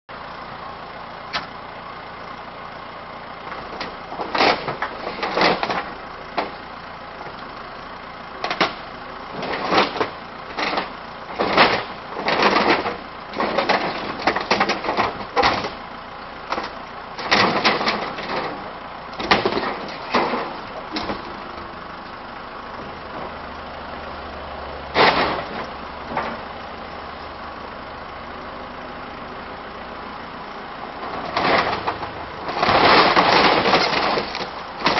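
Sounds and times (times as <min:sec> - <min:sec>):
diesel engine running: 0:00.1 - 0:34.9
walls crashing and cracking: 0:31.4 - 0:34.9.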